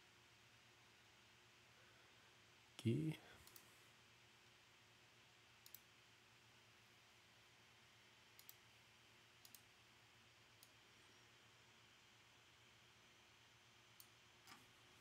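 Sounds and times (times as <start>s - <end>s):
faint sharp clicks: 3.4s - 3.7s, 5.6s - 5.9s, 8.4s - 8.6s, 9.4s - 9.7s.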